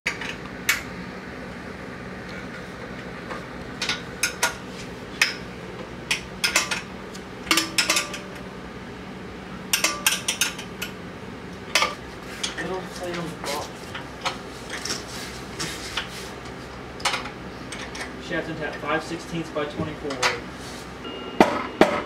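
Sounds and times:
metal tools clinking on engine: 0:06.1 - 0:08.4, 0:09.7 - 0:10.9, 0:17.0 - 0:18.9.

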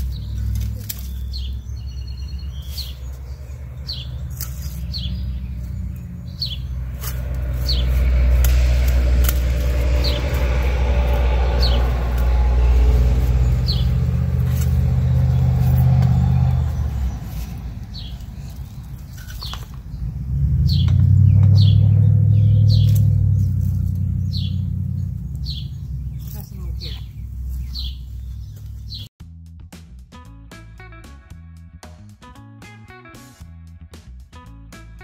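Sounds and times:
small bird chirping: 0:00.0 - 0:08.2, 0:13.2 - 0:29.1
low engine rumble: 0:00.0 - 0:32.3.

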